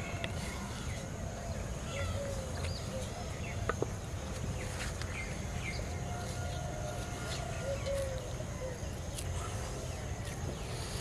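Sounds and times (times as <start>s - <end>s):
dove cooing: 6.4s - 10.0s.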